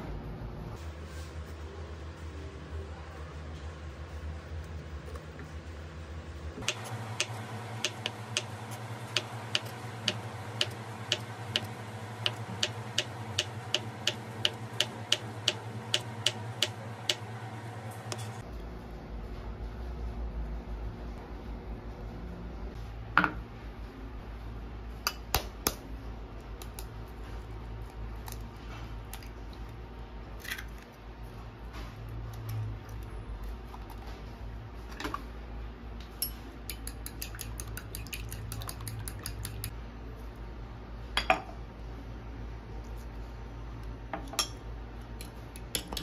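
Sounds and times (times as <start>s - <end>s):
steady low hum: 0.0s - 46.0s
fork beating eggs in ceramic bowl: 6.6s - 17.3s, 36.6s - 39.8s.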